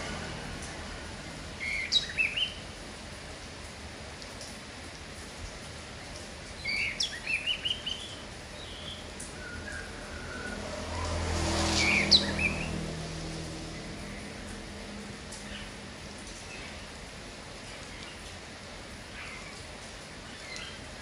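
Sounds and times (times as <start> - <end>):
bird chirping: 1.6 - 2.6, 6.6 - 10.6, 11.7 - 12.8.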